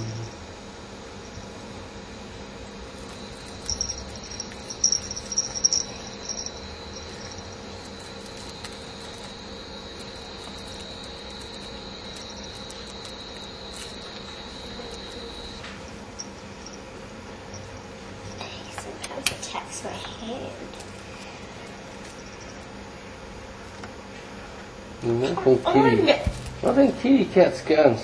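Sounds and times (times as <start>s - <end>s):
high steady whine: 0.0s - 19.0s
cat collar bell jingling: 3.0s - 16.8s.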